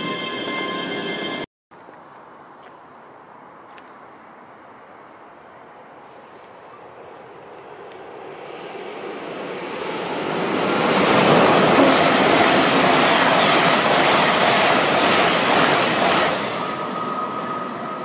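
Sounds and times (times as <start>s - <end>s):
train passing at speed: 7.0s - 18.0s.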